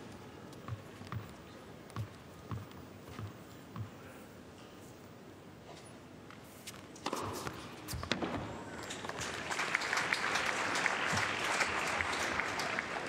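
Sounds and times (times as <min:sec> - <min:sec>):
crowd applause: 0:08.8 - 0:13.0.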